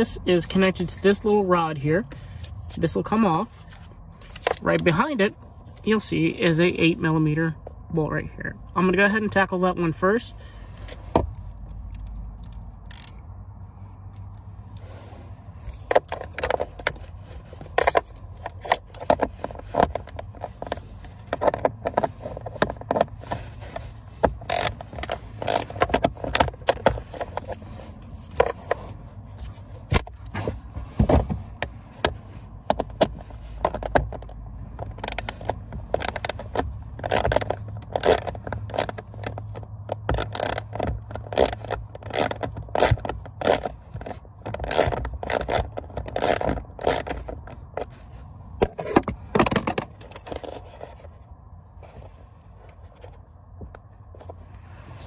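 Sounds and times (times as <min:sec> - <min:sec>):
socket wrench ratcheting: 0:11.7 - 0:13.2, 0:24.4 - 0:27.3, 0:34.8 - 0:47.9.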